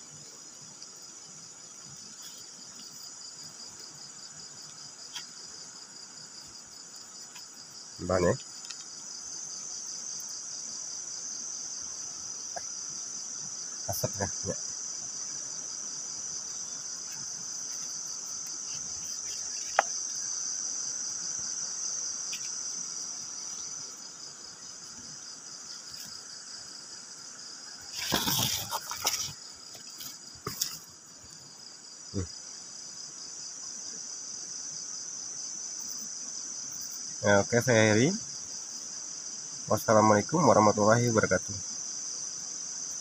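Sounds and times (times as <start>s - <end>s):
night insects chirring: 0.0s - 43.0s
rustling and knocking: 17.0s - 20.2s, 27.9s - 30.9s.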